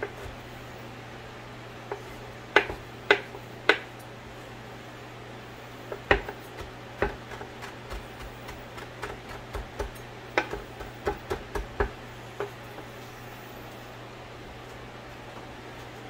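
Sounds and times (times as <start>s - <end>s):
steady low hum: 0.0s - 16.0s
knife chopping on wooden board: 1.9s - 3.9s, 5.9s - 12.6s.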